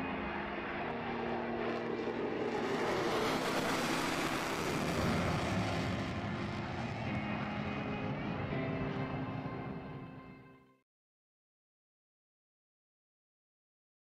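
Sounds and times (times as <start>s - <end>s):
fighter jet roar: 0.0s - 10.2s.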